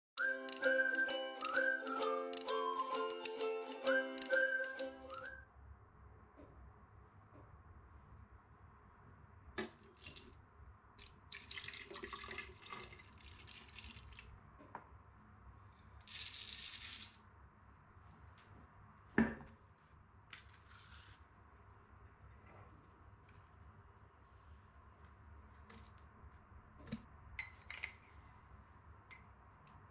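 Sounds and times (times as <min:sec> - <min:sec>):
milk pouring and splashing: 0:09.8 - 0:10.4, 0:11.0 - 0:14.4.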